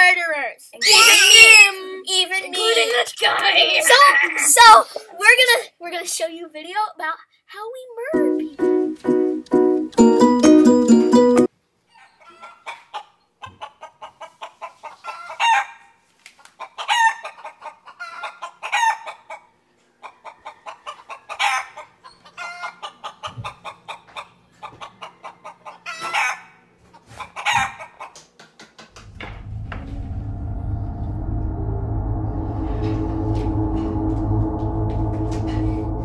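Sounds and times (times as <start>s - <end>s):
loud squawks: 0.8s - 1.7s.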